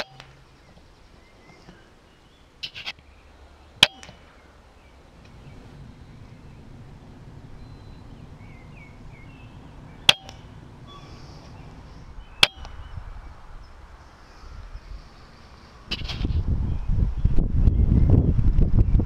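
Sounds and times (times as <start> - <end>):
faint birdsong: 0.0 - 18.3
air rifle shots: 3.8 - 4.3.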